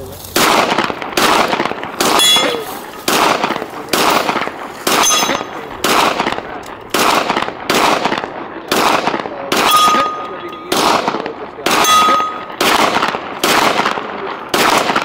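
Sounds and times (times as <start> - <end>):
rifle shots: 0.3 - 15.0
bullet ringing on steel target: 2.1 - 2.7, 4.9 - 5.8, 9.6 - 10.8, 11.8 - 12.6.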